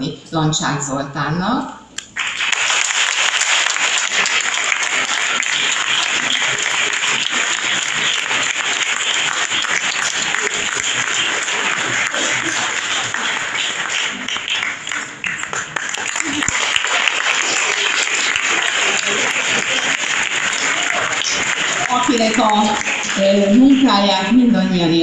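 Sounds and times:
audience applauding: 2.0 - 24.2.

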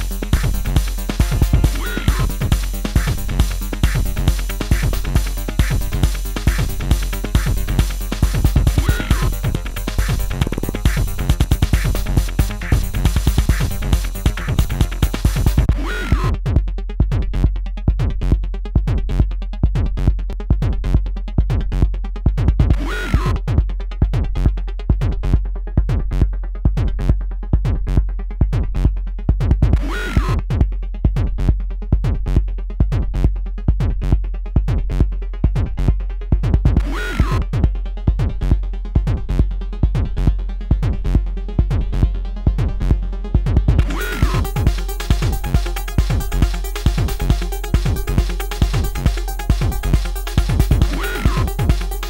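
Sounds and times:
sustained low bass: 0.0 - 29.8, 30.4 - 52.0
drum machine kick beat: 0.0 - 52.0.

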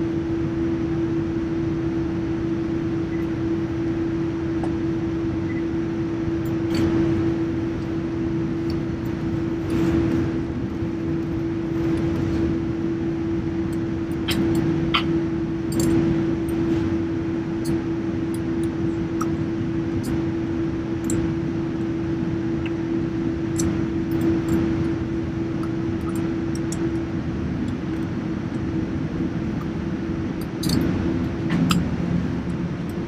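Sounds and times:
aircraft engines idling: 0.0 - 33.0.

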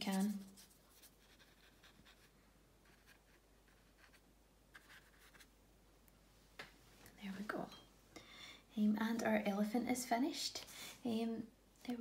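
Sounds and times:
paintbrush swishing on paper: 0.0 - 2.3.

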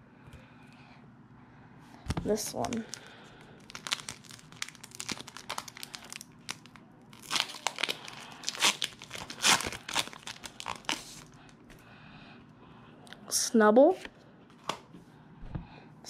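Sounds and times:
foil wrapper crinkling and tearing: 2.4 - 11.6.

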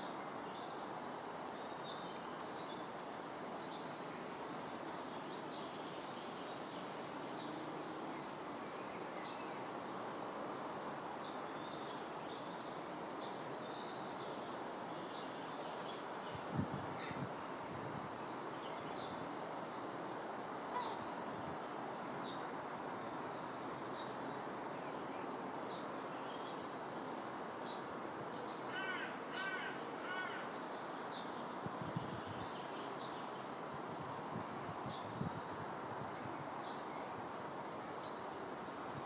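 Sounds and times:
crow cawing: 28.7 - 30.5.

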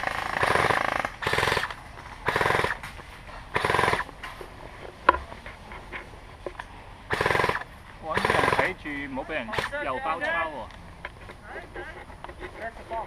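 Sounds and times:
airsoft rifle full-auto fire: 0.0 - 2.8, 3.5 - 4.1, 7.1 - 8.7.

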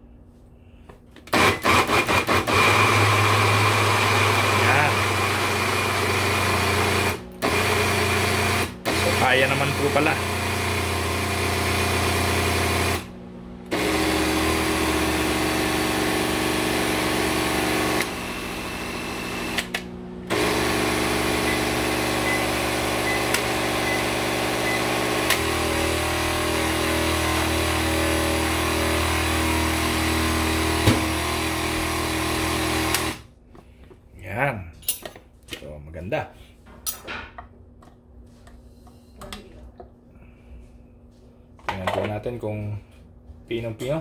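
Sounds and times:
blender motor running hard: 1.3 - 33.3.

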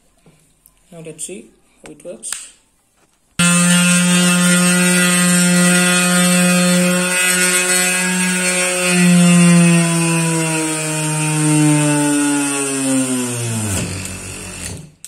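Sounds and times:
drill motor whining: 3.4 - 15.0.

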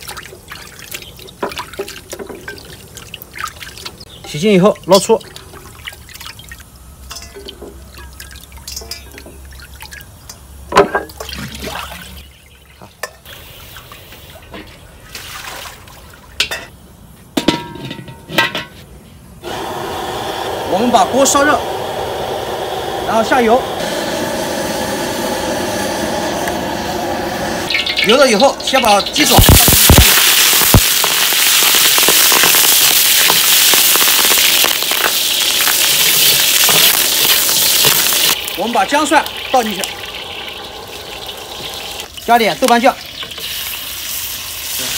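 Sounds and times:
water splashing and dripping: 0.0 - 16.6, 27.7 - 44.7
metal ladle clinking: 7.1 - 9.4, 16.4 - 16.8, 17.4 - 18.8
food sizzling in hot oil: 19.4 - 44.9
oil crackling and popping: 27.7 - 44.9.

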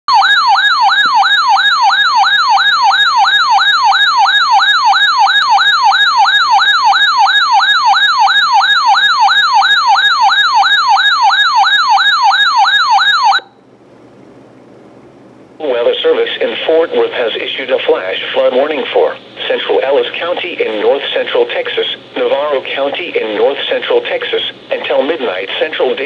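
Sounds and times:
electronic alarm siren warbling: 0.1 - 13.6.

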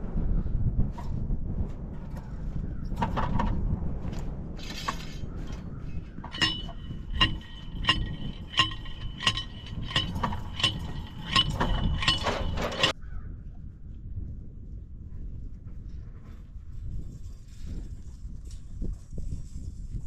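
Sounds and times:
fence posts clinking together: 2.9 - 3.6, 4.6 - 12.9.

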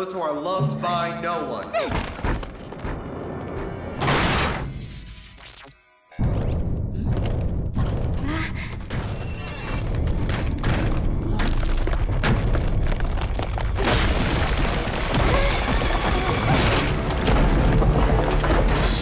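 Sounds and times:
dramatic background music: 0.0 - 5.2, 14.6 - 19.0
stone breaking and falling: 9.8 - 19.0.

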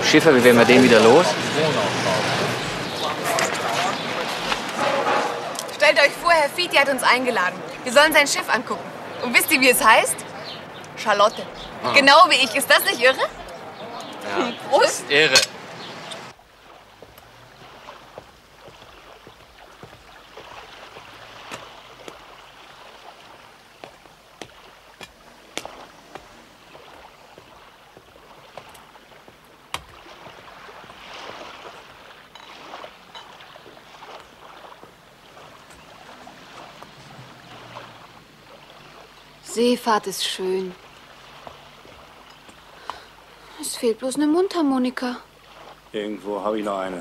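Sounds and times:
water lapping against a boat hull: 0.0 - 47.0.

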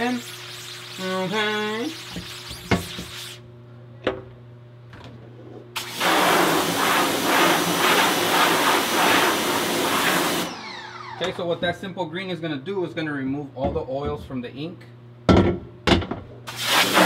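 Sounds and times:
pressure washer spray hissing: 0.0 - 3.4, 5.8 - 10.5, 16.5 - 17.0.

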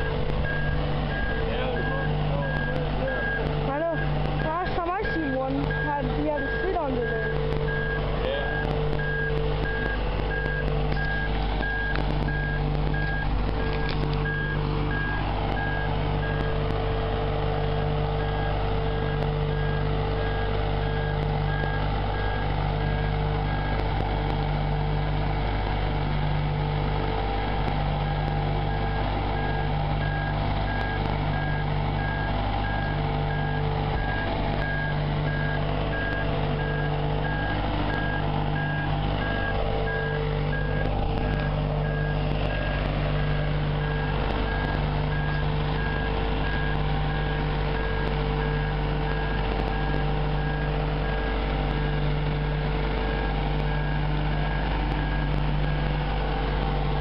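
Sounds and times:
travel alarm beeping: 0.0 - 16.6, 28.0 - 52.0
boat hoist engine running: 0.0 - 57.0.

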